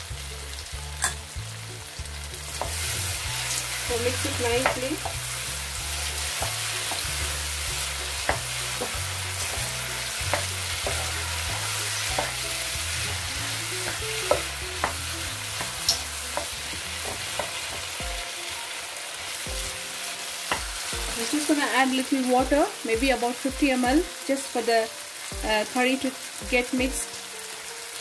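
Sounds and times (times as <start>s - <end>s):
curry sizzling in a pan: 0.0s - 28.0s
spatula scraping and tapping pan: 8.2s - 12.5s.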